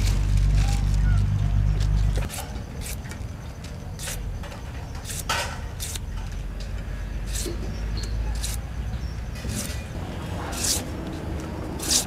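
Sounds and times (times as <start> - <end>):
vegetable peeler scraping cucumber: 2.2 - 3.2, 3.9 - 4.3, 5.0 - 6.2, 7.2 - 8.7, 9.4 - 9.8, 10.4 - 11.1, 11.7 - 12.0.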